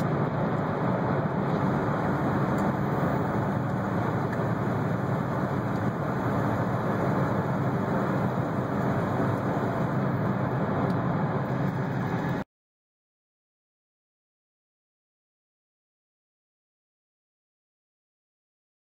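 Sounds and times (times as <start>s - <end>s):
car driving at highway speed: 0.0s - 12.5s.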